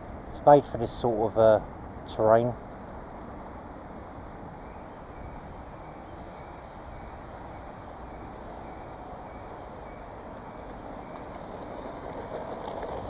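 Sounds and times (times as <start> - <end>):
rc car running on gravel: 10.6 - 13.0.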